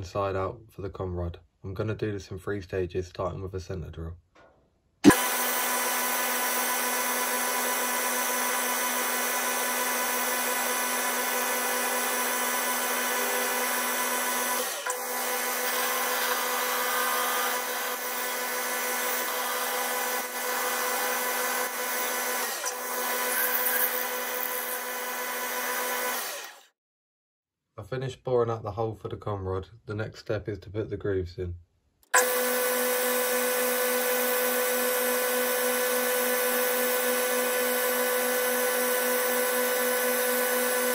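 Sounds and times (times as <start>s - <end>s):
drill boring into aluminium: 5.0s - 26.7s, 32.2s - 40.9s
lathe motor humming: 5.1s - 26.6s.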